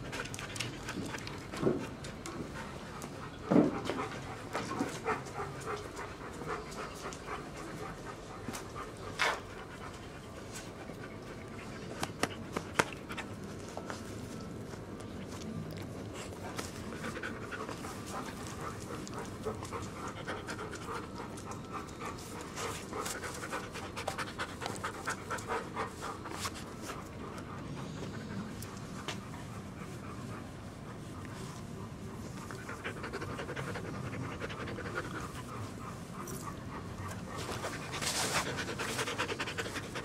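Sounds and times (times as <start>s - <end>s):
dog panting: 0.0s - 13.4s, 15.9s - 40.0s.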